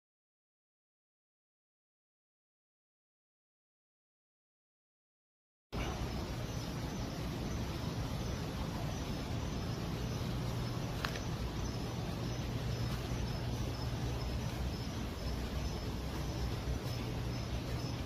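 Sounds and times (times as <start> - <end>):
ventilation machinery hum: 5.8 - 18.0.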